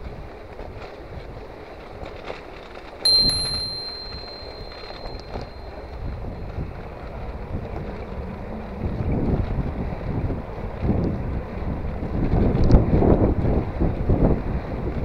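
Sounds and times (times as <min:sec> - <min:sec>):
bicycle bell ringing: 0:03.1 - 0:06.4
wind buffeting microphone: 0:06.1 - 0:15.0.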